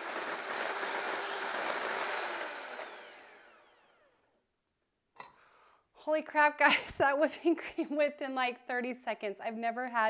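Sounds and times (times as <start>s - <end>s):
electric hand mixer whirring: 0.0s - 4.3s.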